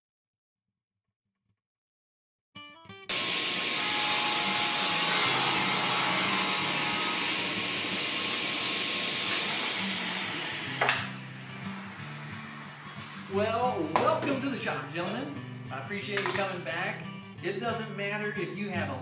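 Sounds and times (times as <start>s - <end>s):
table saw running: 3.1s - 13.3s
saw blade cutting plywood: 3.1s - 13.4s.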